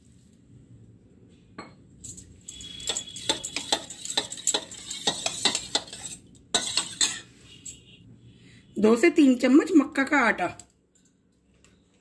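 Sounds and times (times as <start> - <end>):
spoon clattering in bowl: 2.1 - 7.2
spoon whisking in a steel bowl: 2.1 - 7.9.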